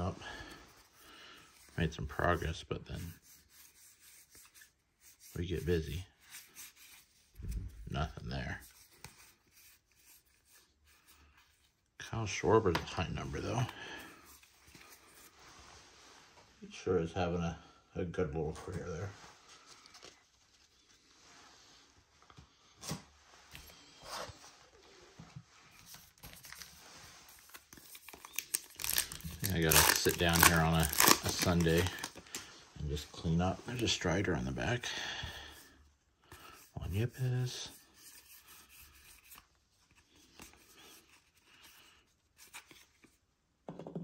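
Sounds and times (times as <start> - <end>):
cards rubbing and sliding: 0.0 - 11.8, 12.8 - 15.8, 22.9 - 33.0, 36.3 - 43.2
trading cards rustling: 25.6 - 32.6.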